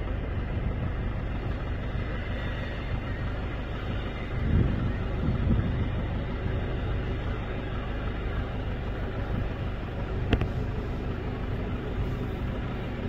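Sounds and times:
jet engines running: 0.0 - 13.0.

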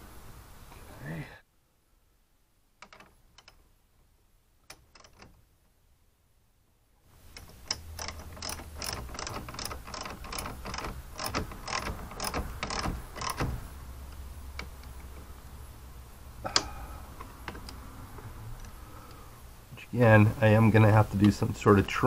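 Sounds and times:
socket ratchet clicking: 2.8 - 3.6, 4.6 - 5.4, 7.3 - 15.2, 16.5 - 17.9.

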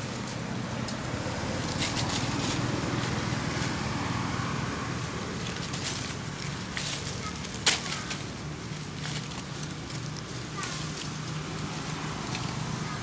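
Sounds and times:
low outdoor rumble: 0.0 - 13.0
dry crackles: 5.4 - 13.0.

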